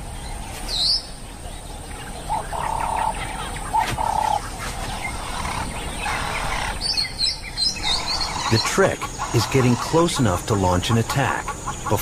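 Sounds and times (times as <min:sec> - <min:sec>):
birds chirping faintly: 0:00.0 - 0:12.0
wild animal calling: 0:02.3 - 0:10.2.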